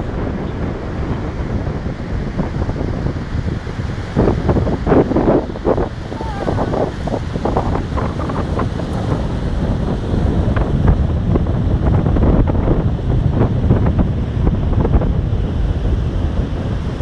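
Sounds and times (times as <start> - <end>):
small waves breaking on beach: 0.0 - 10.8
wind buffeting microphone: 0.0 - 17.0.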